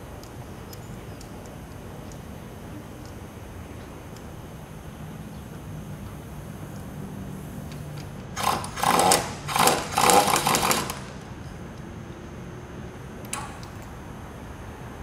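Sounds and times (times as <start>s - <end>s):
steady low hum: 0.0s - 15.0s
power driver bursts: 8.4s - 11.2s.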